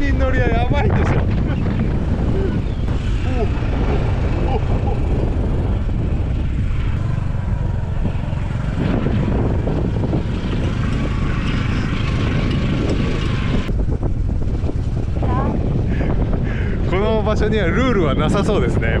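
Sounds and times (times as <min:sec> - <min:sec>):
small motorcycle engine whine: 0:00.0 - 0:16.4
wind rumble on microphone: 0:00.0 - 0:19.0.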